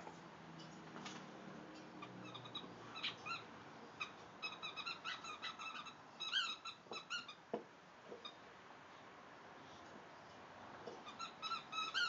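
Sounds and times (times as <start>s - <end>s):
squeaky dog toy squeaking: 2.2s - 7.4s, 11.0s - 12.0s.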